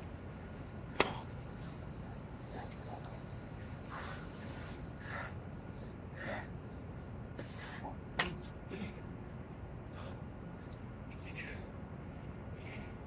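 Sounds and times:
man breathing hard: 3.9 - 6.6, 9.8 - 10.4, 12.6 - 13.0.

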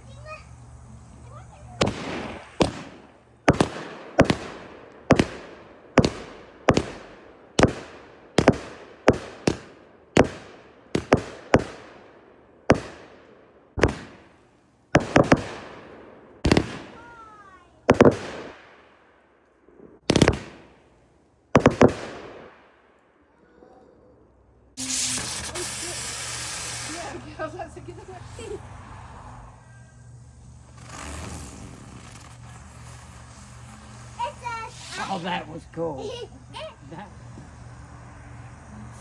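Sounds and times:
firework shells banging: 1.6 - 19.1, 19.7 - 23.0, 24.8 - 28.2, 29.5 - 35.5.

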